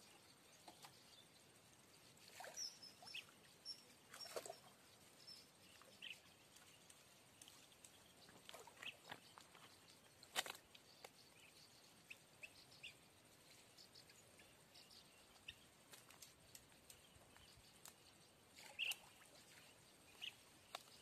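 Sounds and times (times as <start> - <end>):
faint bird chirps: 0.0 - 21.0
light ticks: 5.7 - 11.2, 15.3 - 18.2, 20.6 - 21.0.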